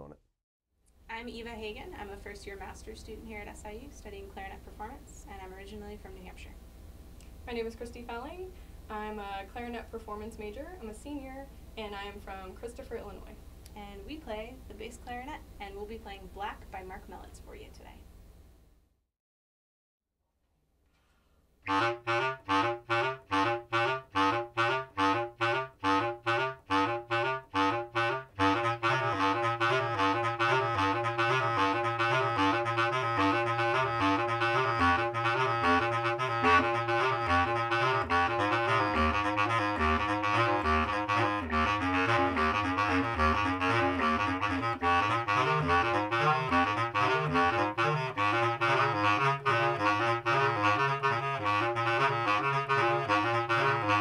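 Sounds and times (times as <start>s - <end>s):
bass clarinets playing: 21.6s - 54.0s.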